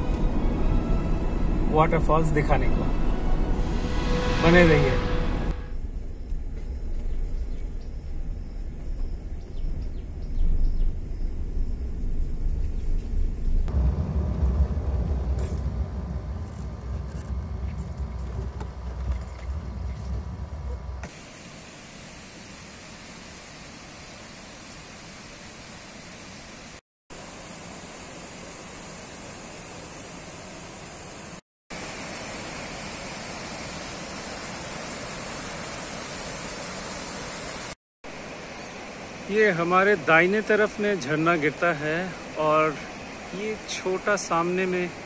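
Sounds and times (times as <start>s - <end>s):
car engine and road rumble: 4.6s - 21.1s
water rushing: 13.7s - 30.8s, 31.7s - 45.0s.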